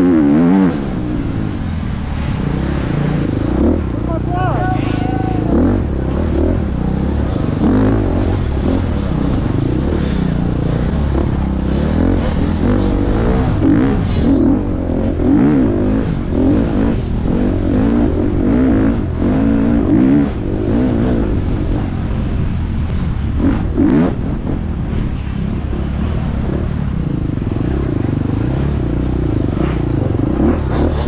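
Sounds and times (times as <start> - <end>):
dirt bike engine revving: 0.0 - 22.4, 27.6 - 31.0
chassis rattles: 5.4 - 14.8.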